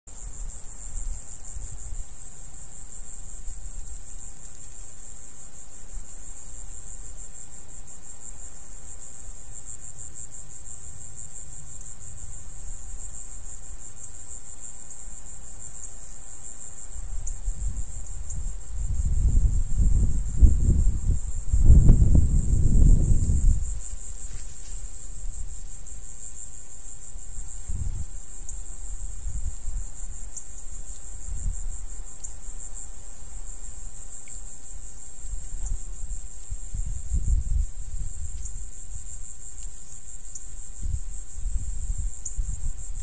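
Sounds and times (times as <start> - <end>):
insect chorus trilling: 0.1 - 43.0
low rumbling gusts: 17.0 - 24.3.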